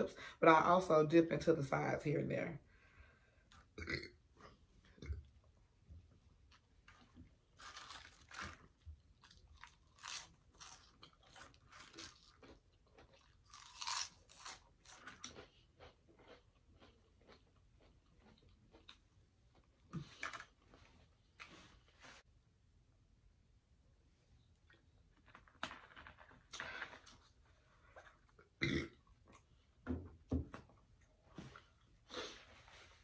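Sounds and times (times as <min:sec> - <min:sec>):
chewing potato chips: 0:06.5 - 0:20.4.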